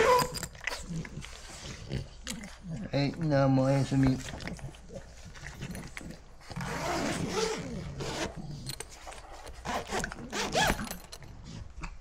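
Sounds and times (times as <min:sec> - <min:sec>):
zipper rasping shut: 0:00.0 - 0:00.9, 0:05.6 - 0:11.1.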